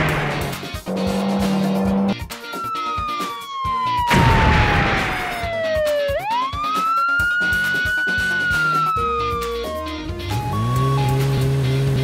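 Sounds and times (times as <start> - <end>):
background music with a beat: 0.1 - 12.0
cartoon police siren tone: 2.5 - 11.2.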